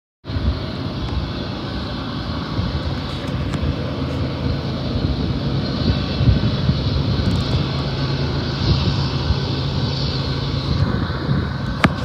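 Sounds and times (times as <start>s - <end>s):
diesel engines droning: 0.2s - 12.0s
freight train rumbling: 0.3s - 12.0s.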